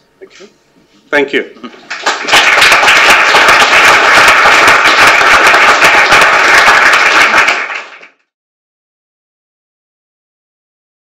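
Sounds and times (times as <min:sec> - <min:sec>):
audience applauding: 0:01.8 - 0:08.3.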